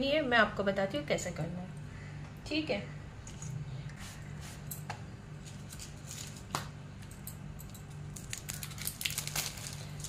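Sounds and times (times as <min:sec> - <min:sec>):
steady low hum: 0:00.0 - 0:10.0
hands handling bread and plastic: 0:05.4 - 0:06.8, 0:07.9 - 0:10.0.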